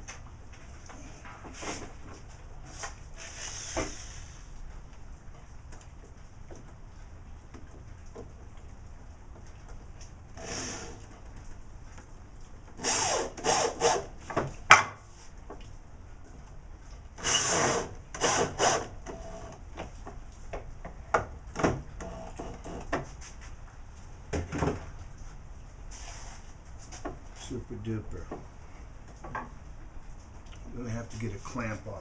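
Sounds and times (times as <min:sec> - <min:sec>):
electric drill bursts: 0:10.4 - 0:11.0, 0:12.8 - 0:14.1, 0:17.2 - 0:19.5.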